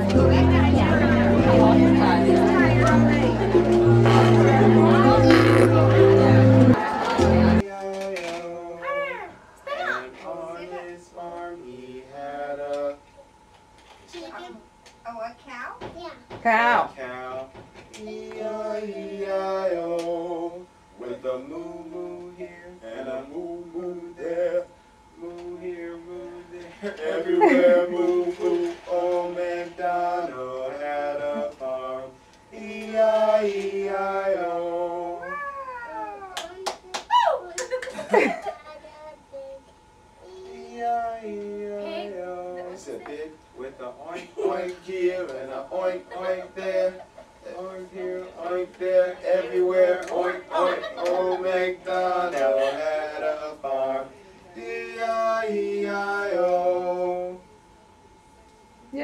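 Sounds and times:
person singing slow tune: 0.0s - 13.3s, 18.0s - 36.3s, 40.2s - 43.3s.

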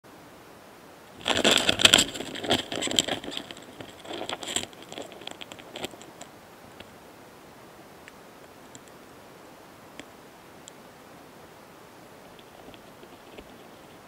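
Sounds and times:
beetles crackling and scraping: 1.1s - 6.9s, 12.3s - 14.0s.

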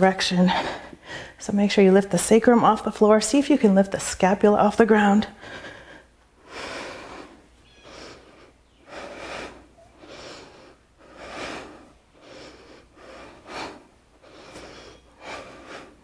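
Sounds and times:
woman breathing hard: 0.5s - 1.4s, 5.3s - 16.0s.

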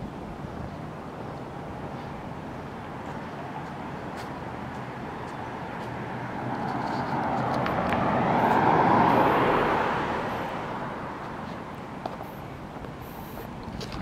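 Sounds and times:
pickup truck driving past: 6.3s - 11.2s.

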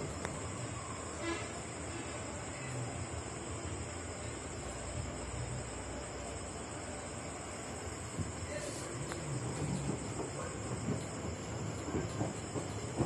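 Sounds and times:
high-pitched hiss: 0.0s - 13.0s
washing machine drum rumbling: 7.4s - 13.0s.

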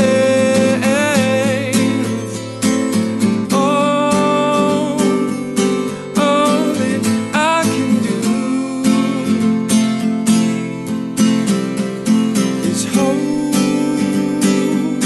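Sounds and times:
man singing: 0.0s - 9.8s, 12.4s - 15.0s
acoustic guitar strumming: 0.0s - 15.0s.

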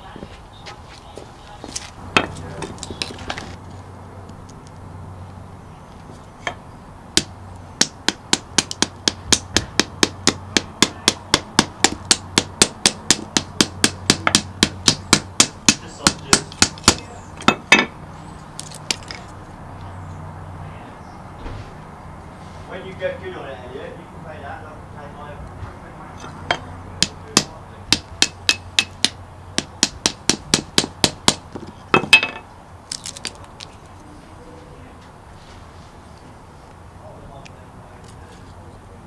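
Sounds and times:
hatchet knocking knife spine: 7.2s - 18.0s, 26.2s - 32.4s
wood stick splitting: 7.2s - 18.0s, 18.6s - 19.4s, 26.2s - 33.8s.

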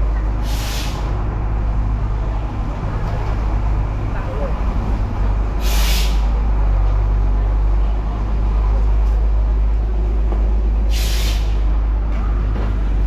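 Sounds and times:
fire engine idling: 0.0s - 13.0s
air brake hiss: 0.4s - 1.1s, 5.6s - 6.3s, 10.9s - 11.6s.

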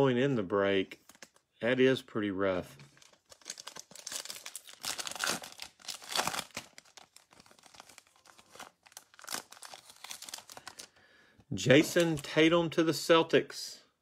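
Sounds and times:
foil wrapper crinkling and tearing: 2.9s - 11.0s.

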